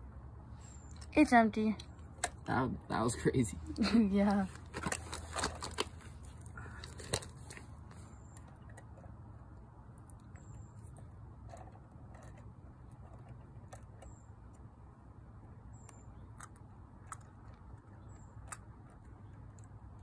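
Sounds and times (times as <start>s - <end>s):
low steady hum: 0.0s - 20.0s
plastic toys clicking on concrete: 10.0s - 14.7s, 15.8s - 20.0s.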